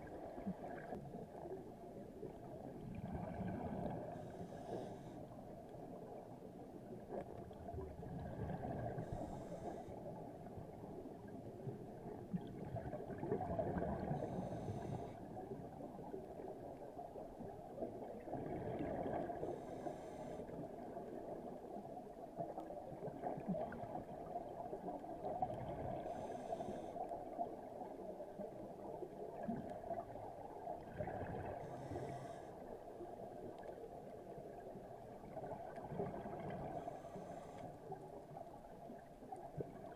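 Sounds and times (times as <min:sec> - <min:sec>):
underwater hiss: 0:03.8 - 0:05.3, 0:08.6 - 0:10.2, 0:14.0 - 0:15.3, 0:19.1 - 0:20.6, 0:25.9 - 0:27.1, 0:31.5 - 0:32.8, 0:36.5 - 0:38.0.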